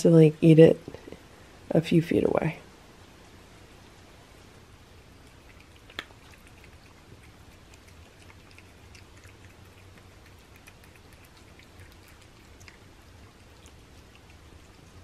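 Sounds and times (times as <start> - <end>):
cats chewing and licking: 5.0 - 15.0.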